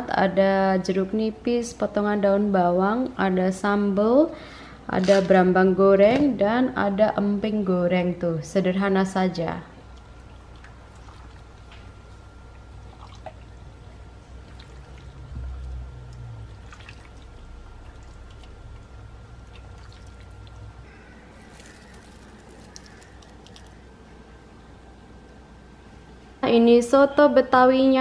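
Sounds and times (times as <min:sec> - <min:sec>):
low steady hum: 0:00.0 - 0:28.0
soup pouring and splashing: 0:12.8 - 0:13.6, 0:16.5 - 0:23.8.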